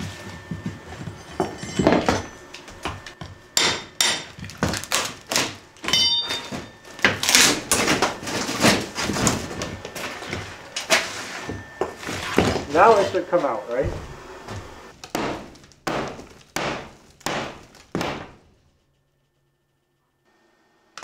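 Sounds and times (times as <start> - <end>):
metal clink: 5.8 - 6.6
pry bar knocking wood: 15.0 - 18.4.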